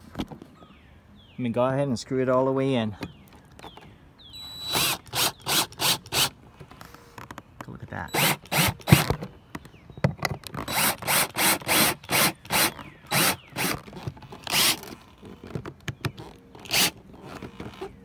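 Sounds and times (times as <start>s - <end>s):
power drill driving screw: 4.4s - 6.3s, 8.1s - 9.1s, 10.6s - 15.0s, 16.6s - 17.8s.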